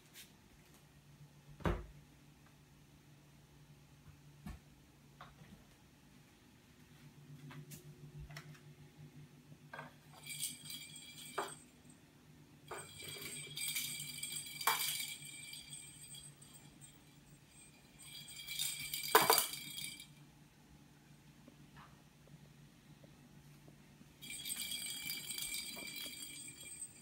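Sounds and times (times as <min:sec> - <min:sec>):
small bell jingling: 0:10.0 - 0:12.0, 0:12.7 - 0:20.2, 0:24.2 - 0:27.0.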